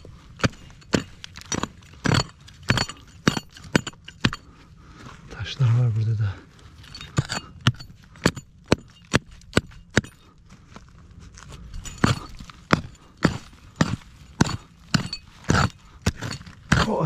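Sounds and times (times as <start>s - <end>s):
pick mattock striking stony ground: 0.0s - 4.6s, 6.9s - 10.3s, 11.7s - 17.0s.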